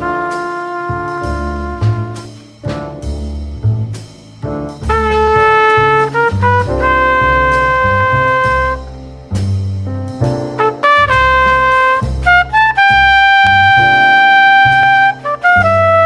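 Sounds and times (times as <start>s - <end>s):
low bass line: 0.0s - 16.0s.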